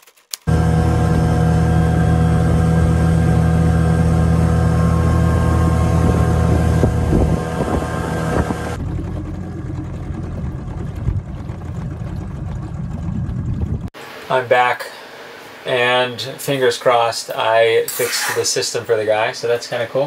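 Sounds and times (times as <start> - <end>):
outboard motor running: 0.5 - 14.0.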